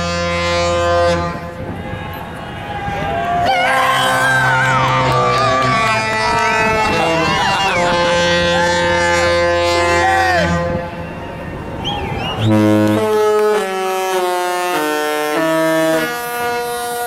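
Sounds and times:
ship horn playing a tune: 0.0 - 2.0, 3.4 - 17.0
people whooping and cheering: 1.7 - 12.6.

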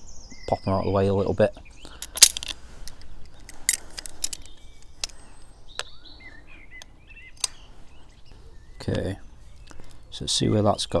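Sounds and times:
birds chirping: 0.0 - 11.0
sharp metallic clicks: 2.0 - 5.2, 6.8 - 7.6.

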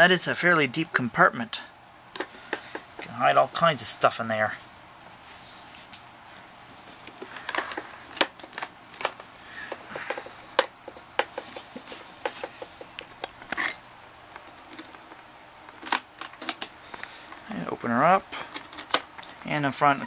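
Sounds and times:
tape recorder case handled: 6.8 - 13.8, 14.4 - 17.4, 18.4 - 19.4.

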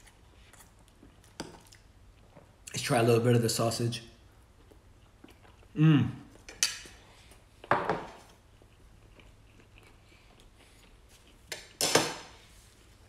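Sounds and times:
man chewing: 0.0 - 2.7, 4.3 - 7.7, 8.3 - 11.8.

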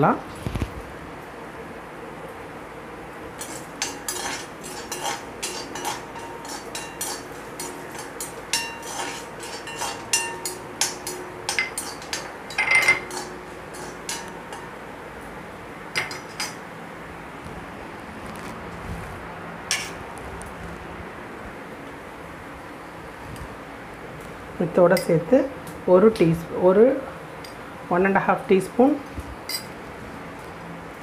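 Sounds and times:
ladle scraping and clinking on pan: 3.4 - 14.8, 16.0 - 16.6, 19.7 - 20.0.

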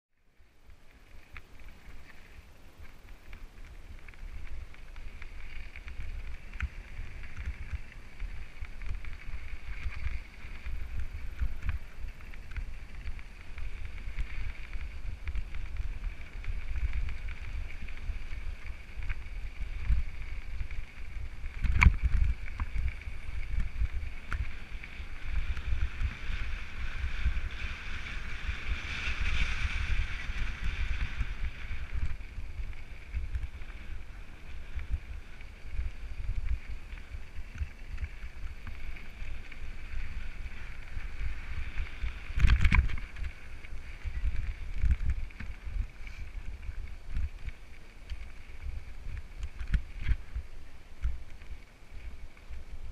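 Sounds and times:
steady high hiss: 0.2 - 25.6
wind buffeting microphone: 0.8 - 52.9.

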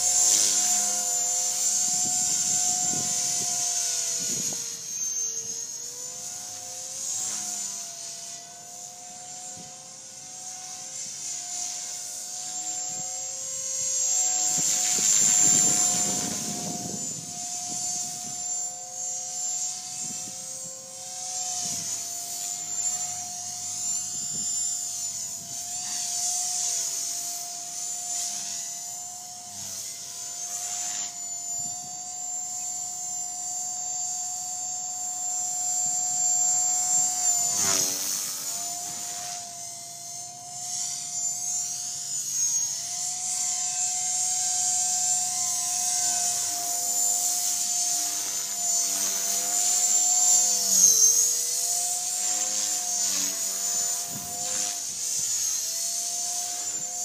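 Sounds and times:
rc helicopter motor whine: 0.0 - 57.0
rotor blades whooshing: 13.8 - 18.7, 35.7 - 39.5.

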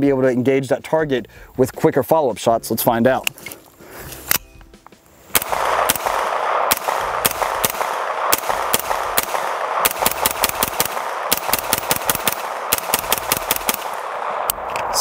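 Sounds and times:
pistol shots: 5.3 - 15.0.

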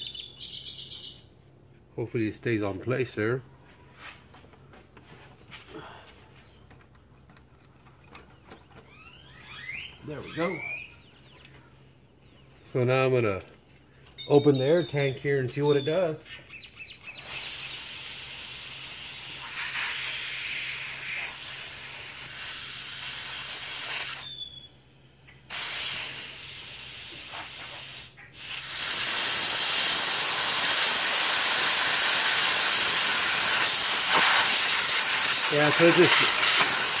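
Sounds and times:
compressed air hissing: 17.2 - 24.4, 25.5 - 37.0.

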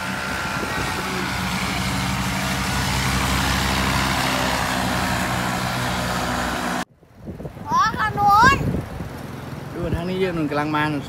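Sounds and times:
paramotor engine running: 0.0 - 6.9.

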